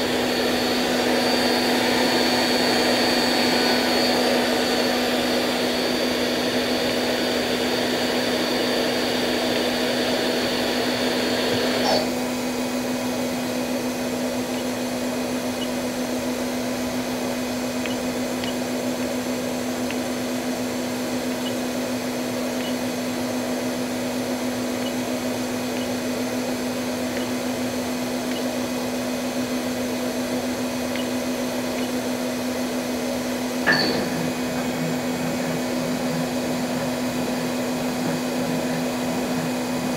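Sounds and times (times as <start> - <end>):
machine steady hum: 0.0 - 39.9
high whine: 27.0 - 39.9.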